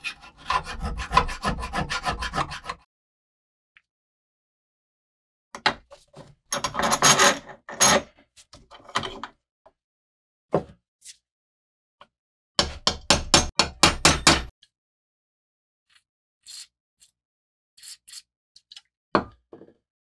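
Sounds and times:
hand tools scraping steel: 0.0s - 2.9s.

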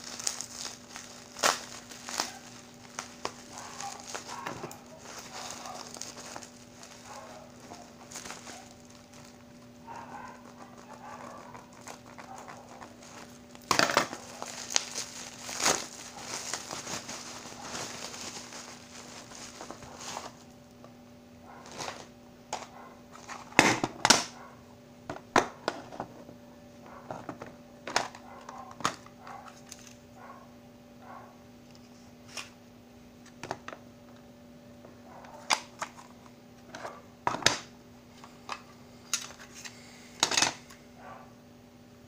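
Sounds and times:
bubble wrap crinkling: 0.0s - 20.8s, 21.5s - 22.1s.

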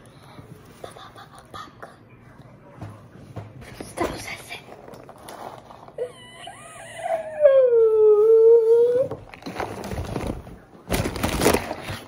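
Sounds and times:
howling wail: 6.1s - 9.2s
paper bag crinkling: 9.2s - 12.0s.

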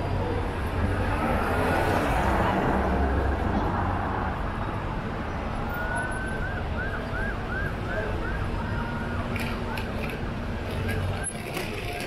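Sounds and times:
city street traffic: 0.0s - 12.0s
emergency vehicle siren: 5.7s - 9.9s.

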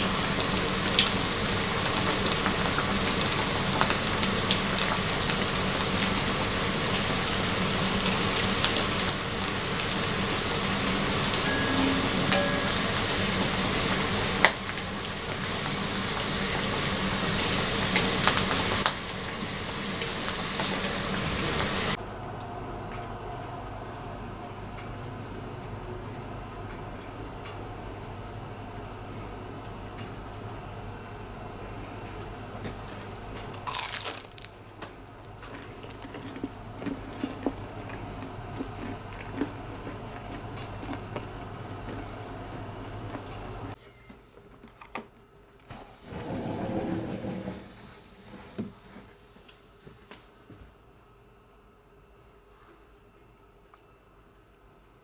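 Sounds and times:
food deep-frying in oil: 0.0s - 22.0s, 33.6s - 35.8s
chewing with crackles: 33.5s - 43.5s
crunch of crisp pastry: 33.6s - 42.1s.

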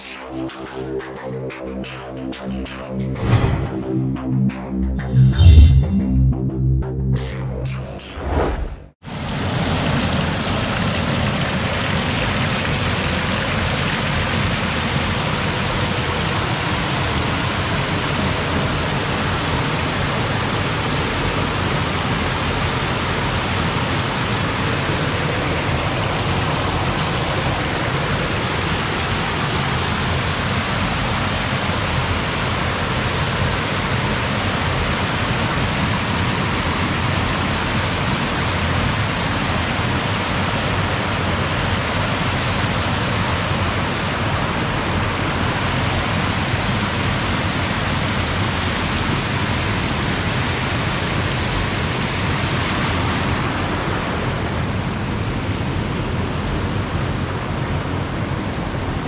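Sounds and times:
water rushing over weir: 9.1s - 53.9s.

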